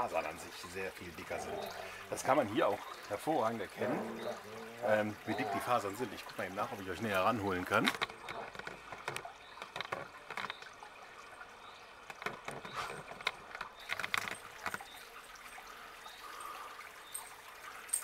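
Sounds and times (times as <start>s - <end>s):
faint steady hiss: 0.0s - 18.0s
fat crackling and popping: 7.0s - 10.8s, 12.0s - 14.9s.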